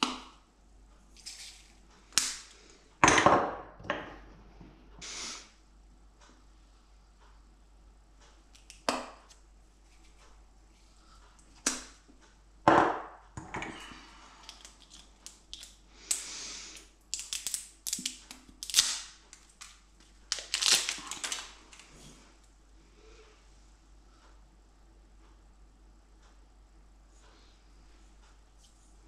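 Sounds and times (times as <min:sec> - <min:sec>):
plastic jar caps clicking: 0:14.4 - 0:16.2, 0:17.1 - 0:21.4.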